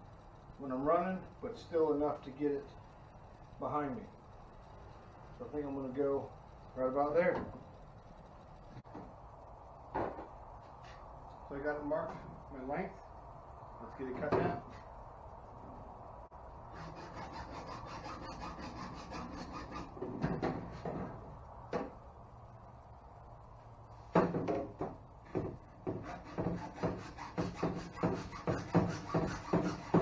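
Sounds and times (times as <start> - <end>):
hacksaw cutting plastic pipe: 16.7 - 20.6, 25.8 - 30.0.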